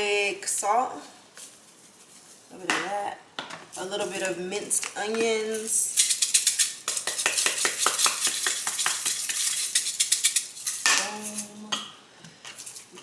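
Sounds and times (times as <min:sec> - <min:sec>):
spice shaker rattling: 0:05.5 - 0:11.5, 0:12.5 - 0:13.0.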